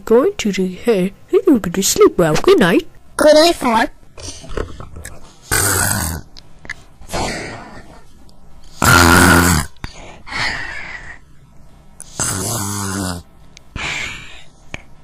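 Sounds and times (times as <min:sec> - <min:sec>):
cartoon rasping snores: 0:05.5 - 0:06.3, 0:08.7 - 0:09.8, 0:12.0 - 0:14.0
soft hissing breaths: 0:09.8 - 0:15.0.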